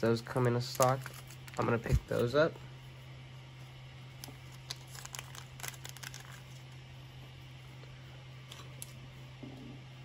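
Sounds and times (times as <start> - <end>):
plastic bag crinkling: 0.3 - 2.0, 4.2 - 6.7.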